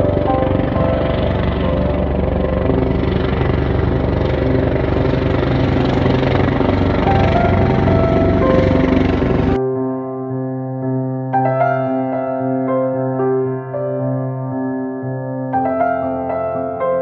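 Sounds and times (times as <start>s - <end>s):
helicopter engines running: 0.0s - 9.6s
helicopter rotor blades beating: 0.0s - 9.6s.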